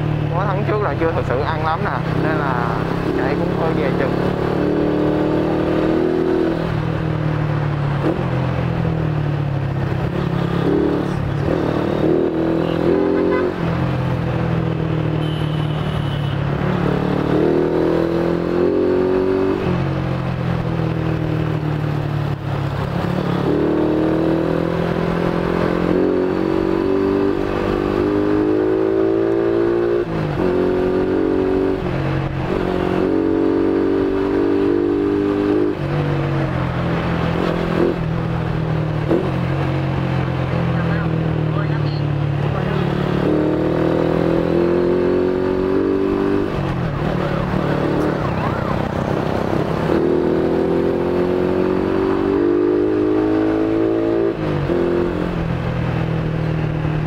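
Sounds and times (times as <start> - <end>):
motorcycle engine accelerating: 0.0 - 15.2, 16.4 - 57.0.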